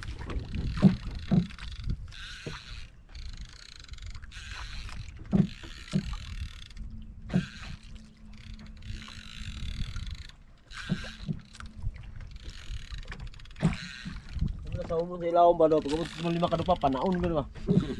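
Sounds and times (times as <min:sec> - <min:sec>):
boat knocking: 0:00.0 - 0:03.4, 0:04.2 - 0:07.8, 0:08.5 - 0:17.9
water slapping against boat hull: 0:00.0 - 0:17.9.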